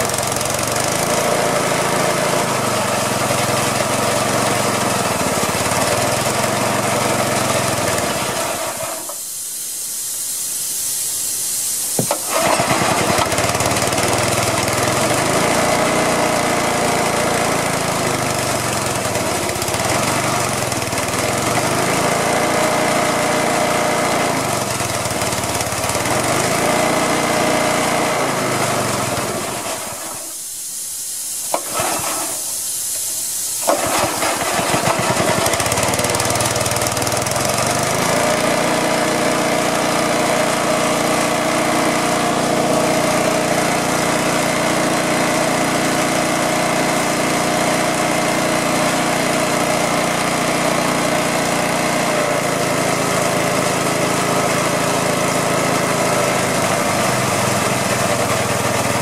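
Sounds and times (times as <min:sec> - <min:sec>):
small gasoline engine running: 0:00.0 - 0:09.2, 0:12.0 - 0:30.4, 0:31.5 - 0:59.0
escaping air hiss: 0:07.0 - 0:13.0, 0:29.2 - 0:36.8.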